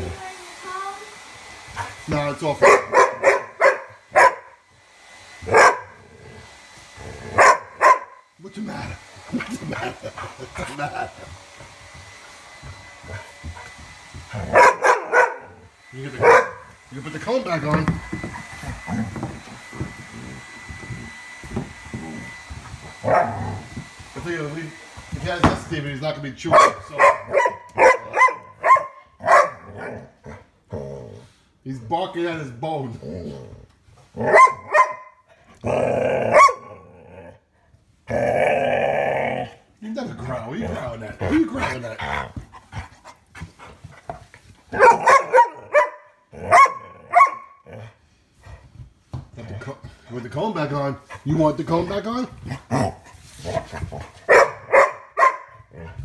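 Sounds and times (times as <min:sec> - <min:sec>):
dog barking: 0:02.6 - 0:04.6, 0:05.5 - 0:06.0, 0:07.4 - 0:08.2, 0:14.4 - 0:15.6, 0:16.2 - 0:16.7, 0:23.0 - 0:23.4, 0:26.5 - 0:30.1, 0:34.2 - 0:35.2, 0:36.3 - 0:36.8, 0:44.7 - 0:47.6, 0:54.3 - 0:55.7
dog growling: 0:07.0 - 0:07.4, 0:14.3 - 0:14.6, 0:18.7 - 0:21.2, 0:21.9 - 0:23.7, 0:29.6 - 0:31.5, 0:32.9 - 0:34.7, 0:35.5 - 0:43.0, 0:46.3 - 0:48.1, 0:52.3 - 0:54.3, 0:55.6 - 0:56.0.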